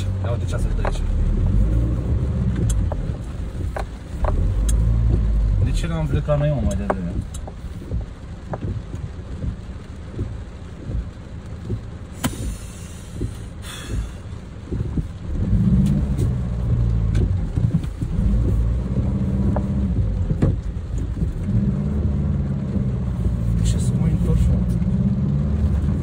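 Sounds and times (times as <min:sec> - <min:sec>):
car engine and tyre rumble: 0:00.0 - 0:26.0
light taps: 0:00.7 - 0:01.2, 0:02.1 - 0:23.8
brief hiss: 0:12.2 - 0:14.2.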